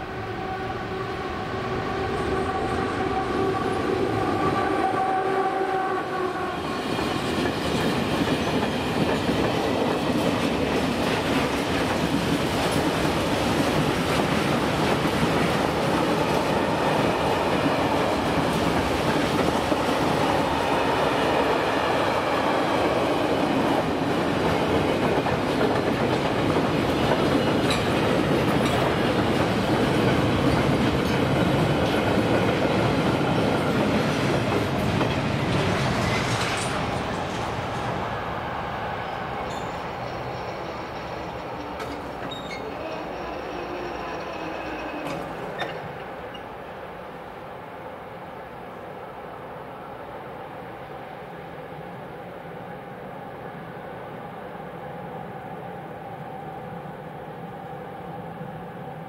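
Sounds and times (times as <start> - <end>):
freight train wheels clattering: 24.4 - 38.0.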